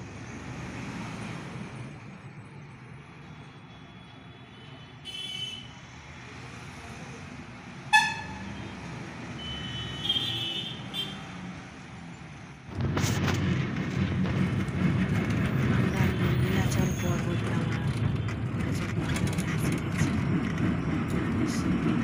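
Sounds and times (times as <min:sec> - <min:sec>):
low traffic noise: 0:00.0 - 0:22.0
moving vehicle rumble: 0:00.0 - 0:22.0
vehicle horns tooting: 0:04.5 - 0:05.8, 0:07.9 - 0:08.8, 0:09.4 - 0:11.3.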